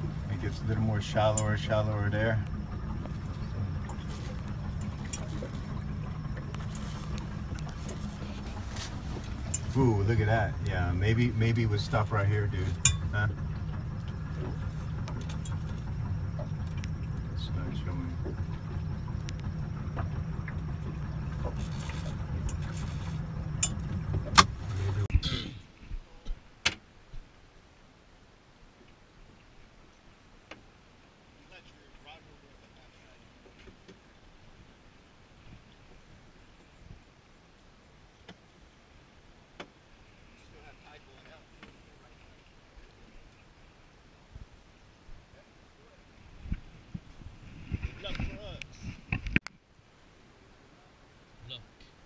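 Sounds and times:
boat engine drone: 0:00.0 - 0:25.1
water washing against hull: 0:00.0 - 0:25.1
light clicks or rattles: 0:12.6 - 0:17.4.

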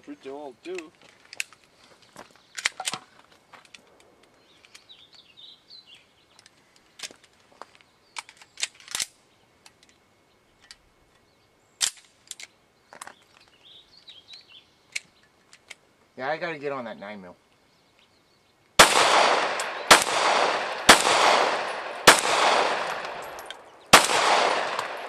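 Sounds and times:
gunshots: 0:18.8 - 0:25.0.

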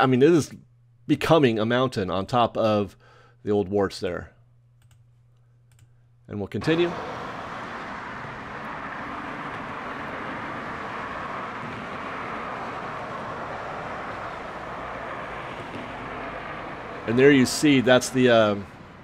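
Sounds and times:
distant traffic rush: 0:06.6 - 0:19.0.

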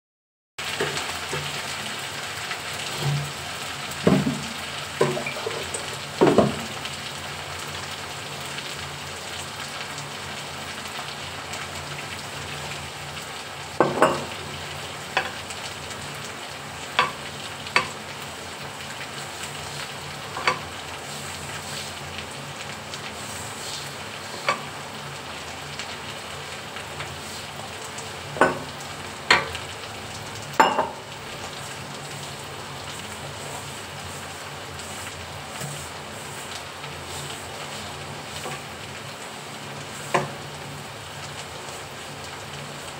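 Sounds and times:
food sizzling: 0:00.6 - 0:42.9
cooking utensils clinking: 0:05.0 - 0:06.4, 0:13.8 - 0:14.4, 0:20.3 - 0:20.7, 0:30.6 - 0:31.0.

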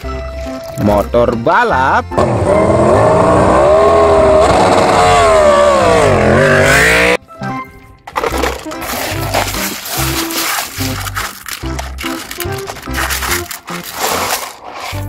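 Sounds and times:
background music: 0:00.0 - 0:15.0
motorcycle engine revving: 0:02.2 - 0:07.2.

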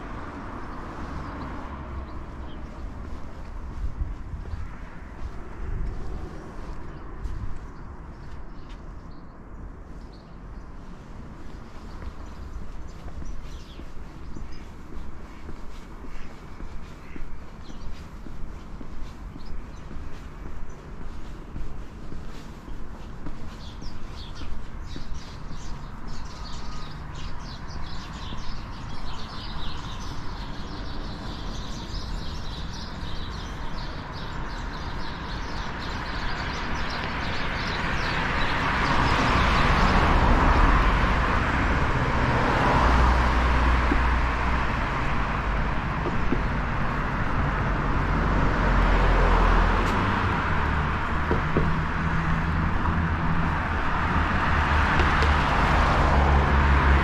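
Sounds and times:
birds chirping: 0:00.0 - 0:40.9
footsteps on pavement: 0:00.0 - 0:57.0
passing cars: 0:00.0 - 0:57.0.

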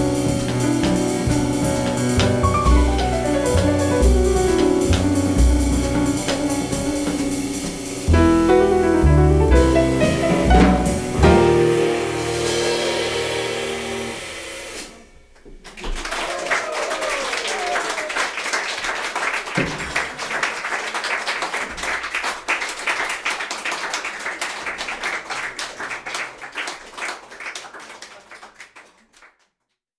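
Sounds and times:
piano trio final chord: 0:00.0 - 0:15.0
audience applauding: 0:15.6 - 0:29.5.

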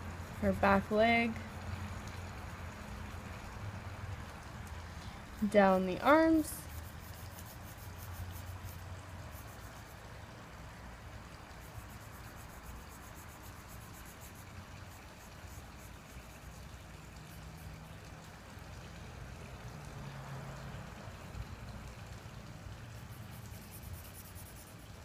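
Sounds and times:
marker rubbing on paper: 0:06.6 - 0:08.8, 0:09.4 - 0:10.0, 0:11.6 - 0:16.4, 0:23.2 - 0:25.0.

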